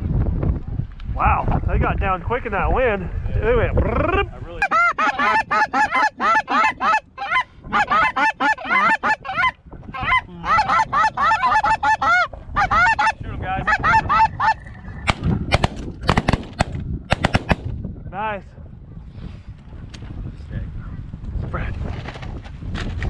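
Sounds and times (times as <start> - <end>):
geese honking: 4.6 - 14.6
shotgun blasts: 15.1 - 17.8.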